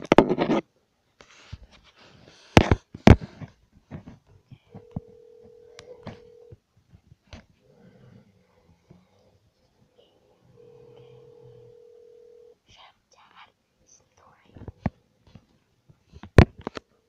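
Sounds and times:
phone ringback tone: 4.7 - 6.6, 10.5 - 12.6.

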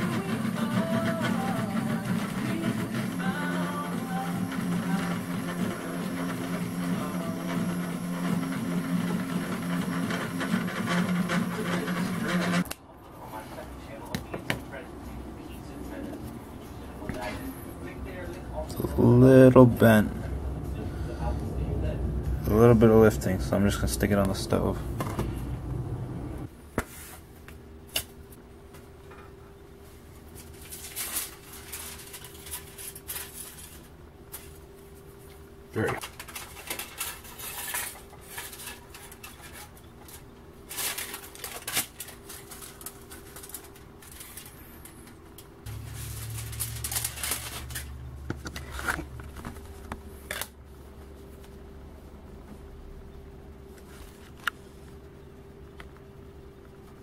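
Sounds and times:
low steady hum: 12.6 - 26.7
aluminium foil crinkling: 30.4 - 33.9, 36.0 - 45.1, 45.7 - 48.1
plastic plate rustling and scraping: 45.7 - 50.6.

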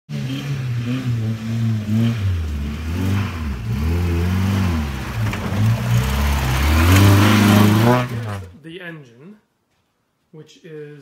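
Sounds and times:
truck engine revving under load: 0.1 - 8.6.

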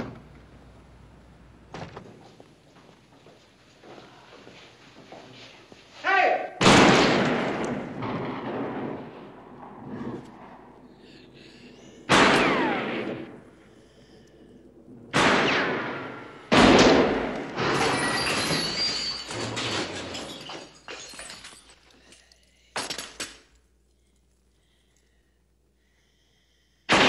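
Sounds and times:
gunshots echoing: 6.6 - 13.8, 14.6 - 18.3.

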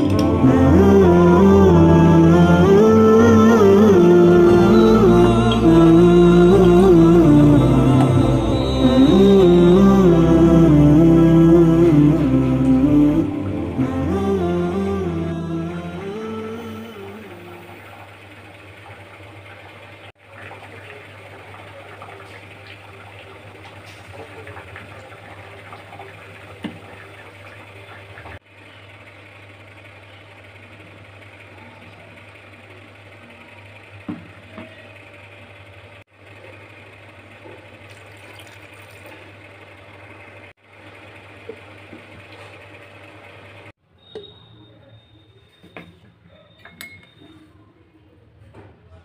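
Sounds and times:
low hum: 0.0 - 19.8.

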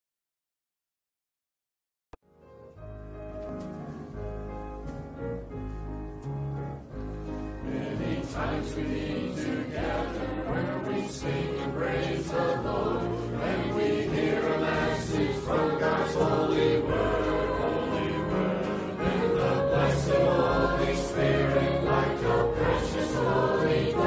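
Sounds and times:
keyboard chords: 2.2 - 24.0
choir singing: 7.6 - 24.0.

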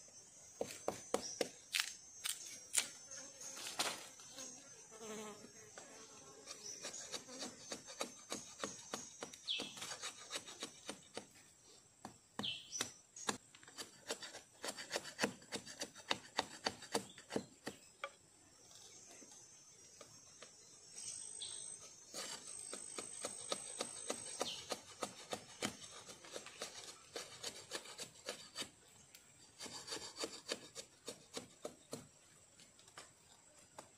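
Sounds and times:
knife scraping wooden stick: 6.4 - 11.2, 13.6 - 17.4, 21.8 - 28.8, 29.4 - 31.7.

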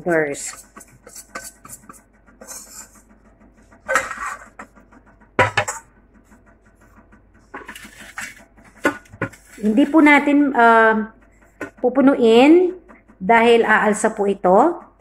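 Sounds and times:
jug scraping on countertop: 0.0 - 3.0, 3.8 - 4.7, 5.4 - 5.9, 7.5 - 10.3.

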